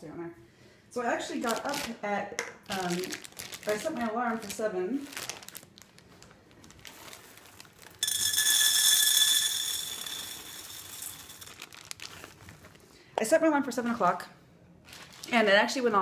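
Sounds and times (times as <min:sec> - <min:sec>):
plastic bag crinkling: 0:01.4 - 0:02.0, 0:02.7 - 0:12.8, 0:14.8 - 0:15.8
coffee beans rattling into pan: 0:07.4 - 0:12.4
metal pan ringing: 0:08.0 - 0:11.6.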